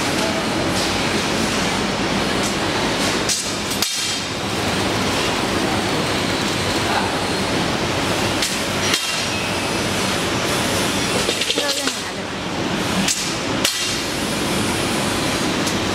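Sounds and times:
factory machinery running: 0.0s - 15.9s.

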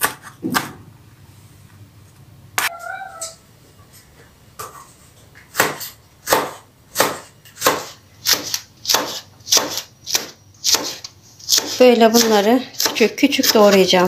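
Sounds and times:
knife chopping on plastic board: 5.5s - 13.9s.

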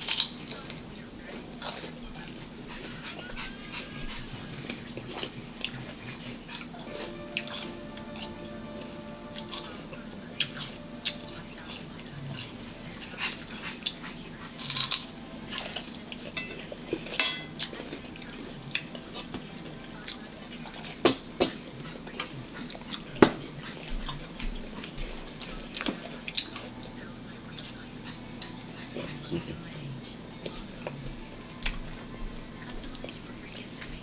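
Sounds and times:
celery crunching: 0.0s - 3.4s, 4.5s - 21.0s.

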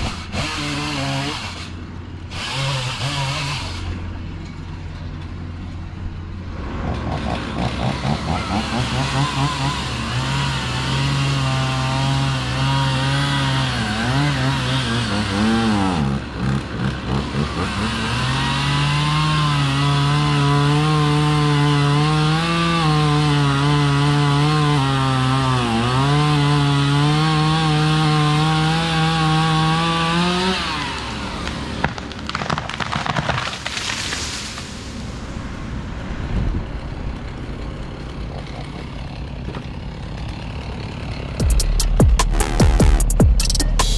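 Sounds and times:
chainsaw cutting wood: 0.0s - 4.3s, 6.7s - 34.7s, 37.0s - 43.9s.

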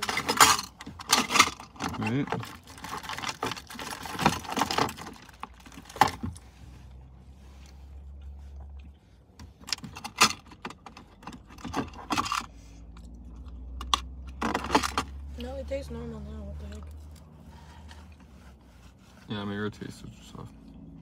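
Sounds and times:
food packaging rustling: 2.4s - 6.0s.

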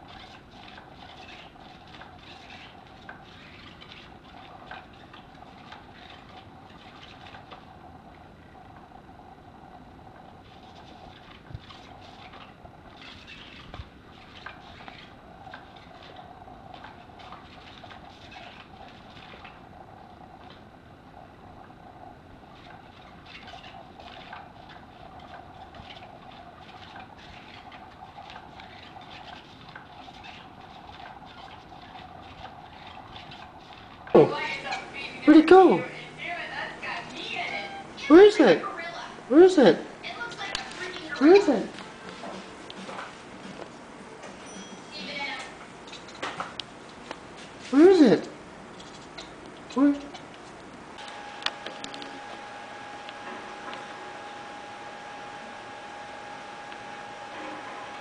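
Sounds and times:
wand rustling and scraping fabric: 0.0s - 7.7s, 40.0s - 47.8s
toy motor humming: 0.0s - 20.6s, 22.6s - 41.7s, 51.0s - 58.0s
small electric motor whirring: 51.0s - 58.0s.

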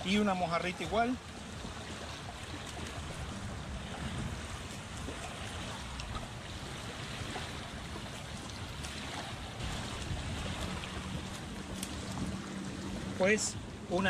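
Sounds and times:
small waves washing ashore: 0.0s - 14.0s
wind rumbling on microphone: 0.0s - 14.0s
cast net ticks and rustles: 10.0s - 12.4s.

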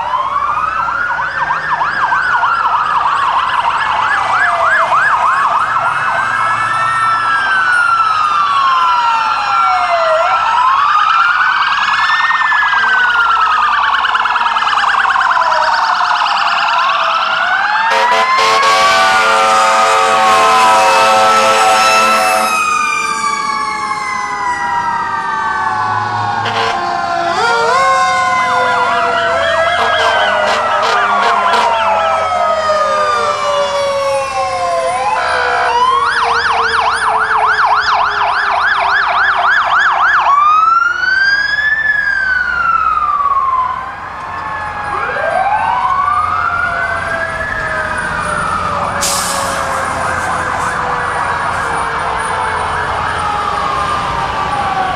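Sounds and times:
electronic sirens wailing: 0.0s - 54.9s
siren winding down: 0.0s - 54.9s
siren yelp: 0.0s - 54.9s
fire truck horn blast: 12.8s - 13.2s, 17.8s - 22.7s, 26.4s - 27.8s, 29.6s - 32.2s, 35.1s - 36.0s, 49.0s - 51.8s.

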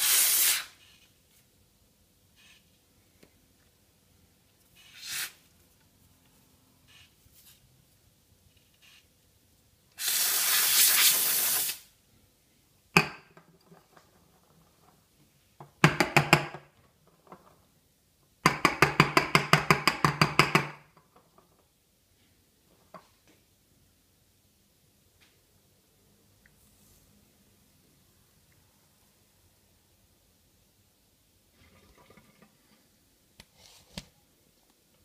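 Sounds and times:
steam wand hissing: 0.0s - 0.7s, 10.0s - 11.9s.

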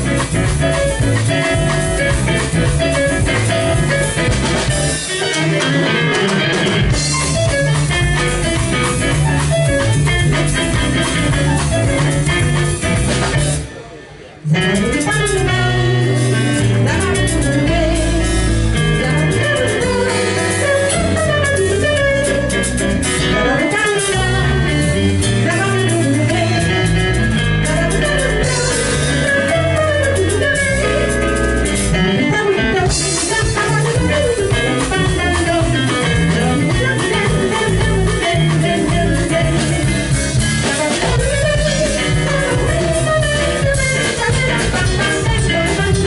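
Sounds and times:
live band playing: 0.0s - 46.0s
woman singing lead: 14.5s - 31.2s, 31.9s - 46.0s.

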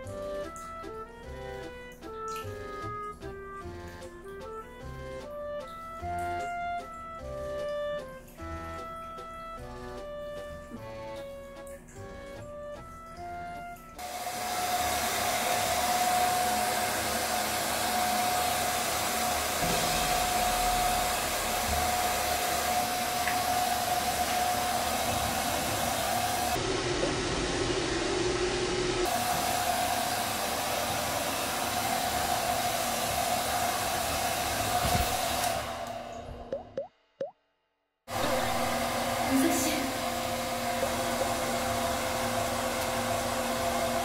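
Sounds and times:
hair dryer blowing: 14.0s - 36.4s, 38.1s - 44.0s.

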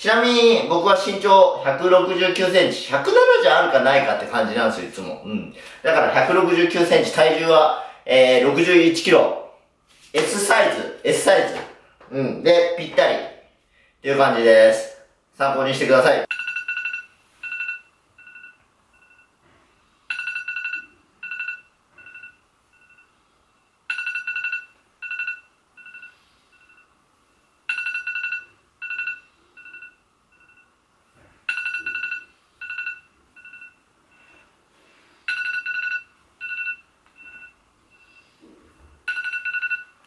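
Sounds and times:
smartphone alarm beeping: 16.3s - 19.4s, 20.0s - 23.2s, 23.9s - 27.0s, 27.7s - 30.8s, 31.5s - 40.0s.

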